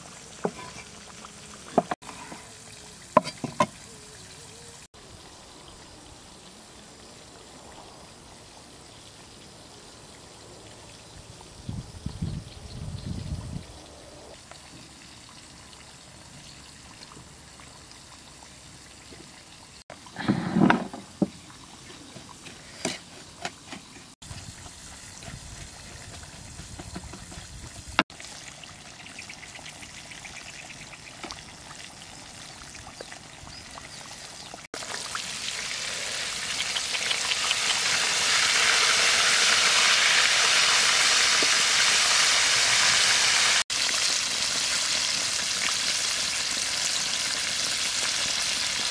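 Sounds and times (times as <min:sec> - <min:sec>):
fish sizzling in oil: 0:33.8 - 0:48.9.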